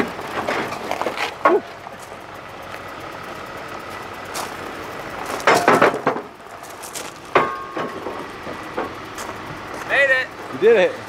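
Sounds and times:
wooden ramps clattering: 0.0s - 2.1s, 5.2s - 9.9s
ringing metal clank: 5.4s - 6.3s, 7.3s - 8.2s.

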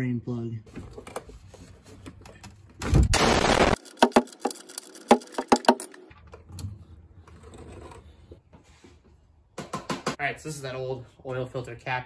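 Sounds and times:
loud noisy burst: 3.1s - 3.8s.

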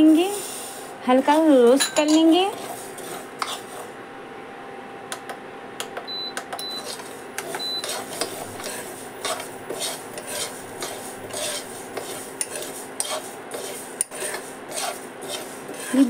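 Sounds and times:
spoon scraping a pan: 1.3s - 3.9s, 6.6s - 16.0s.

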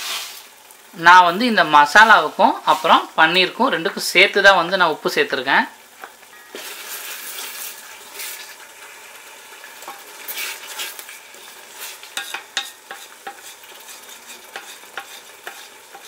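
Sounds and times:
masala sizzling in metal pot: 0.0s - 16.0s
spatula scraping against pot: 9.8s - 16.0s.

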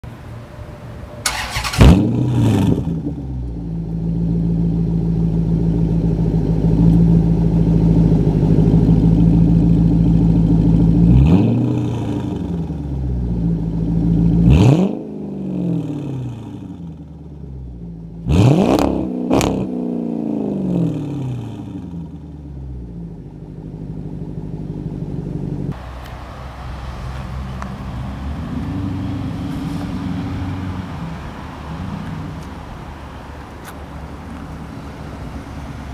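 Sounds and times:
car engine starting and idling: 1.1s - 35.9s
engine revving: 1.2s - 3.6s, 10.6s - 13.0s, 14.0s - 17.1s, 18.2s - 22.9s.

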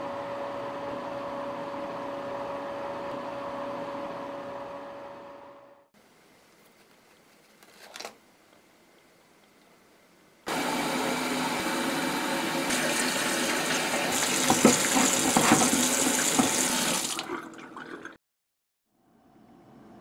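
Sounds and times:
sink faucet running: 10.6s - 18.2s
water splashing into basin: 12.7s - 18.2s.

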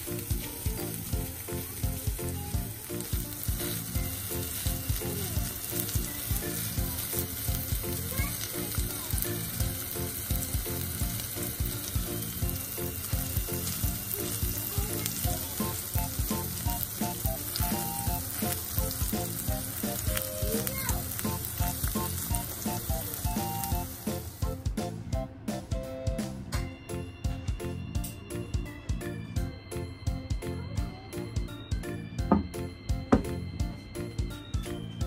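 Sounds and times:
burger patties sizzling in oil: 0.0s - 24.6s.

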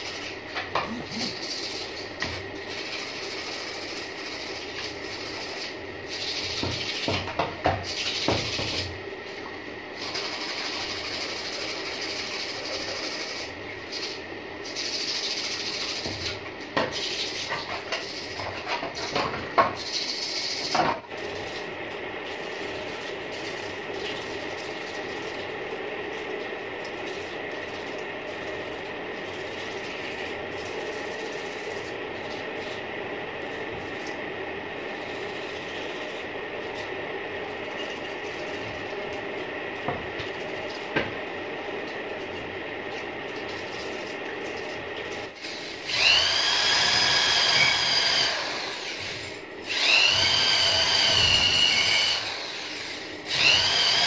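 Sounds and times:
steady mechanical hum: 0.0s - 54.0s.

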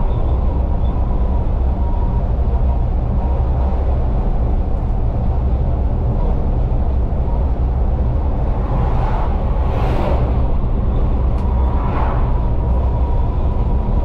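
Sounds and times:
bus engine and tyres rumbling: 0.0s - 14.0s
lorry passing whoosh: 8.0s - 13.1s.

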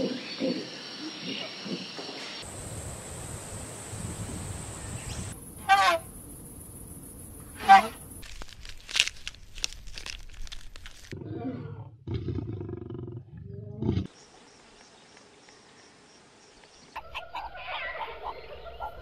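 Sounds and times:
crackling clicks: 8.2s - 11.1s.

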